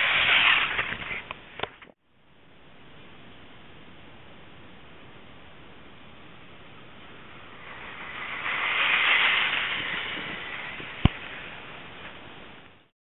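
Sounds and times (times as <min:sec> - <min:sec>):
toy trucks driving over gravel: 0:00.0 - 0:01.8, 0:07.5 - 0:12.3.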